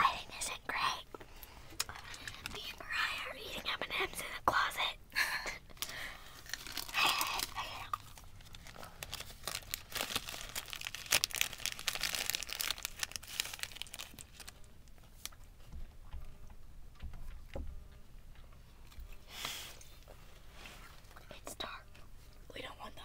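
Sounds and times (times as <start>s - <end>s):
crinkling and rustling: 1.2s - 2.8s, 5.7s - 21.4s.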